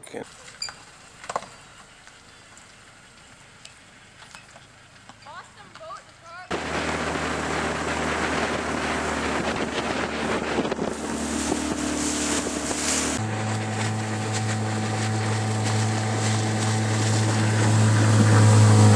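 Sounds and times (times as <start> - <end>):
outboard motor running: 6.2 - 18.9
wind buffeting microphone: 6.5 - 18.9.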